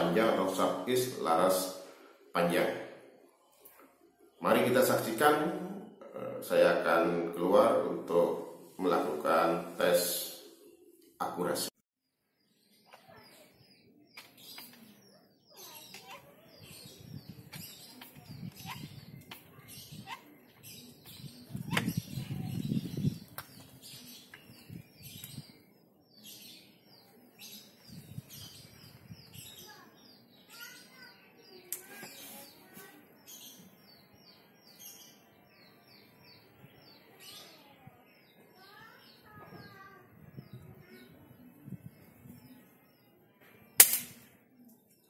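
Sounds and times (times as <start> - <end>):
small birds chirping: 0.0 - 45.0
air rifle shot: 43.8 - 44.3.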